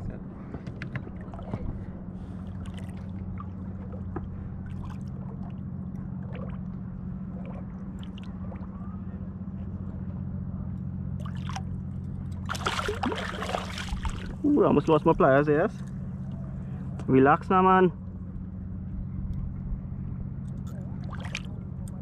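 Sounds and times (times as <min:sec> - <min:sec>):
outboard motor idling: 0:00.0 - 0:22.0
water splashes: 0:02.4 - 0:08.9, 0:12.4 - 0:15.0, 0:21.0 - 0:21.5
fish thrashing splash: 0:12.4 - 0:14.4.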